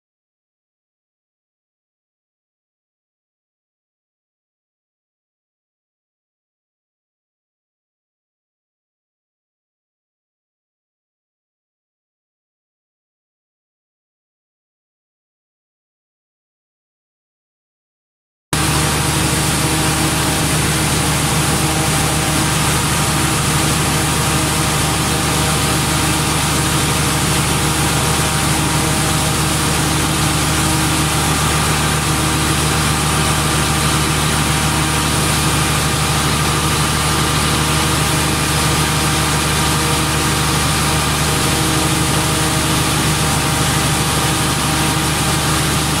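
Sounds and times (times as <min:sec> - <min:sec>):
diesel generator engine running: 0:18.6 - 0:46.0.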